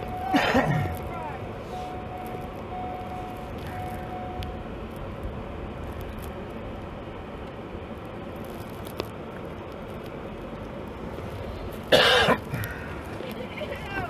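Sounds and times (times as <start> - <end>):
car engine low rumble: 0.0 - 14.0.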